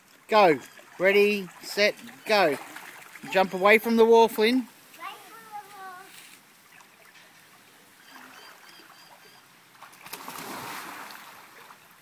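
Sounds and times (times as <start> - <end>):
churning water: 0.0 - 5.6, 6.6 - 12.0
splash into a swimming pool: 9.8 - 11.8.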